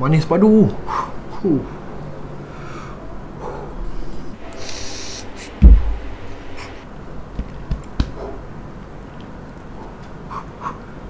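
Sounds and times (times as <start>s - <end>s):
exhale blowing on microphone: 3.8s - 6.8s
air drawn through vape: 4.5s - 5.6s.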